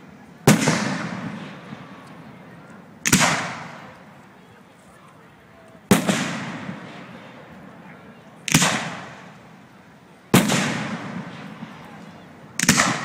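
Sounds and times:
fireworks booming: 0.0s - 4.2s, 5.8s - 7.8s, 8.5s - 9.6s, 10.3s - 13.0s.

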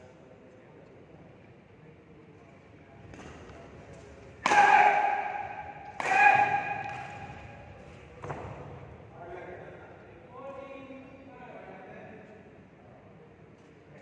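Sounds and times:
light shuttlecock hits: 3.1s - 8.7s
loud ringing racket hits: 4.4s - 7.6s.

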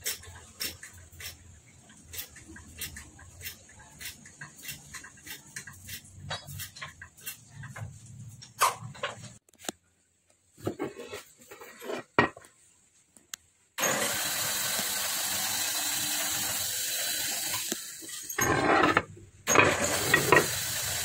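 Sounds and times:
metal parts clicking and knocking: 17.9s - 20.5s
loud steady hissing: 19.5s - 21.0s.

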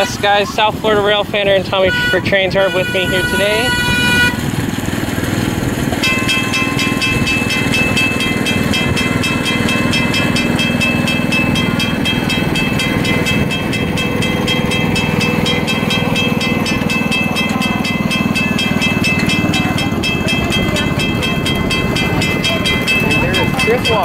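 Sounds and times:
ride-on train rumbling: 0.0s - 24.0s
rapid ringing bell: 5.9s - 24.0s.

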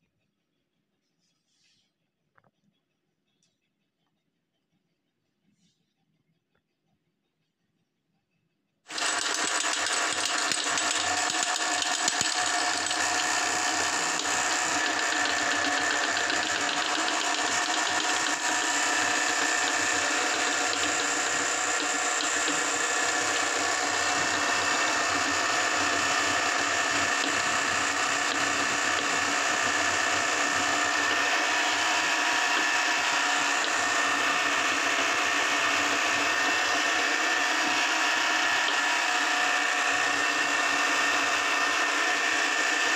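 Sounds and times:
electric meat grinder motor running: 8.9s - 42.9s.

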